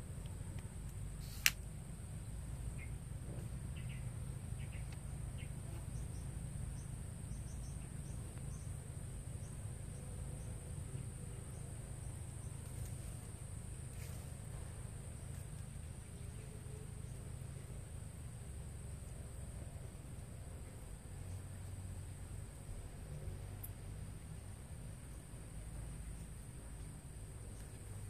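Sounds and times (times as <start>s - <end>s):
low background rumble: 0.0s - 28.0s
sharp click: 1.2s - 1.6s.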